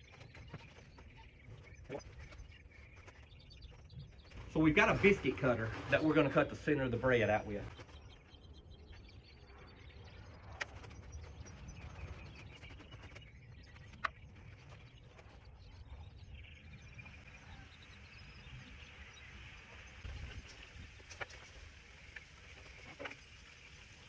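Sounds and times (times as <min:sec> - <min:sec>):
faint bird chirps: 0:00.0 - 0:24.0.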